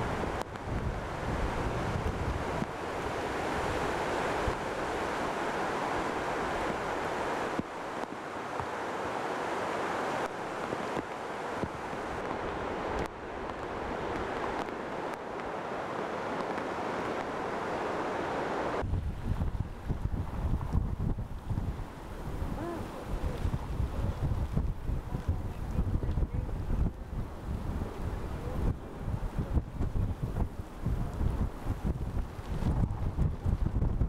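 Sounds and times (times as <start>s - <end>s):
wind buffeting microphone: 0.0s - 8.8s, 18.5s - 34.0s
choppy breaking water: 0.0s - 34.0s
hurricane wind blowing: 0.0s - 34.0s.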